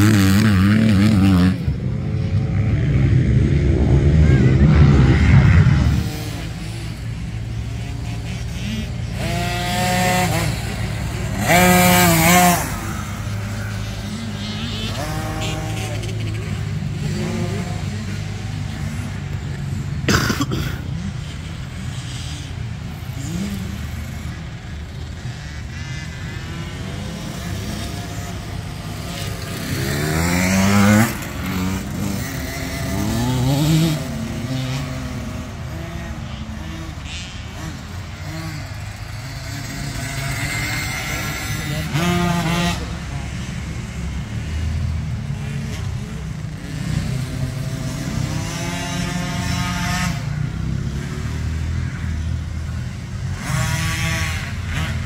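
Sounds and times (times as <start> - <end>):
dirt bikes revving and passing: 0.0 - 55.0
low engine drone: 1.5 - 9.3.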